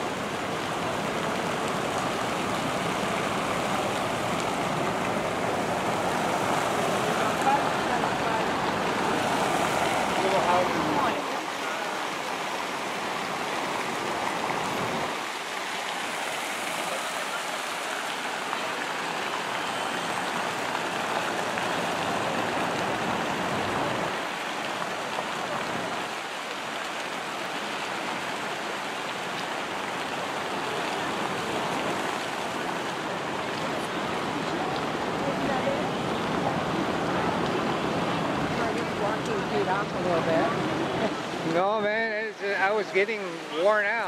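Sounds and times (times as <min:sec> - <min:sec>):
rushing city noise: 0:00.0 - 0:26.0.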